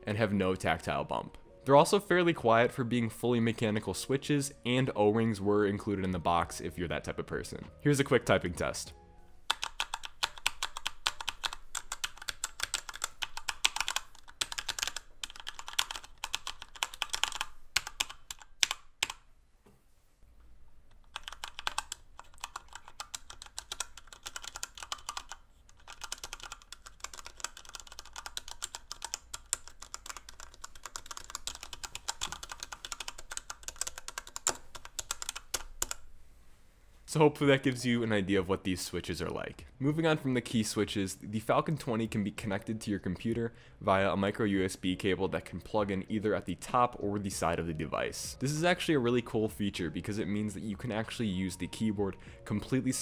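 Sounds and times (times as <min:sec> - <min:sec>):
mechanical keypad typing: 0:09.5 - 0:19.2, 0:21.0 - 0:36.0.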